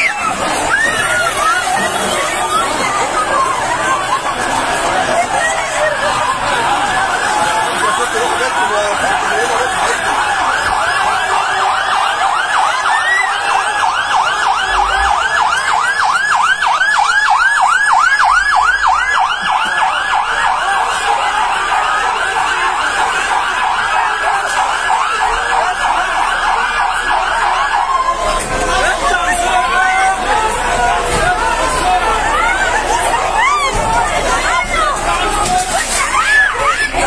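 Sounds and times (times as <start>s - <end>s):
fire engine siren yelping: 0.0s - 37.0s.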